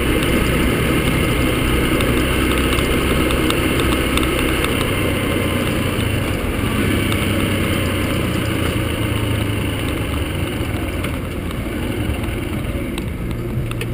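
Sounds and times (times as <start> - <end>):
motorcycle engine running: 0.0 - 13.9
wind and road noise: 0.0 - 13.9.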